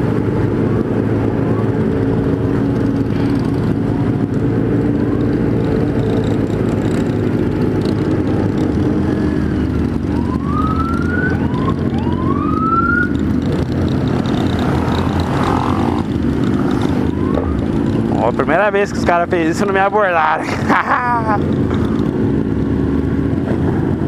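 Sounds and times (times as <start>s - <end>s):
motorcycle engines running: 0.0s - 24.0s
siren whooping: 9.4s - 13.2s, 16.8s - 18.0s.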